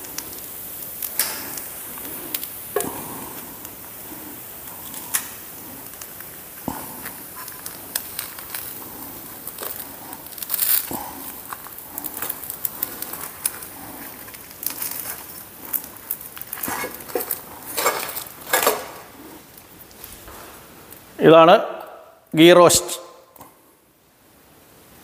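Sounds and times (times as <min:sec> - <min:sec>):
crisp dosa rustling: 0:00.0 - 0:21.1
steel spatula scraping a griddle: 0:09.4 - 0:19.0.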